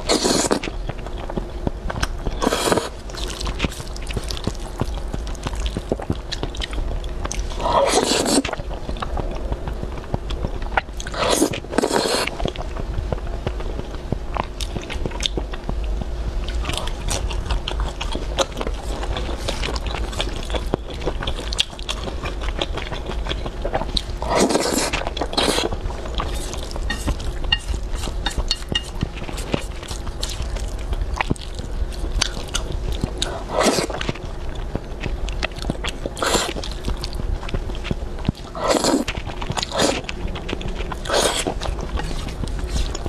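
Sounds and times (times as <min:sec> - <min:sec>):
noodle slurping: 0:00.0 - 0:00.7, 0:07.7 - 0:08.5, 0:24.2 - 0:25.7, 0:38.6 - 0:40.0
wet chewing: 0:00.0 - 0:12.8, 0:13.4 - 0:43.0.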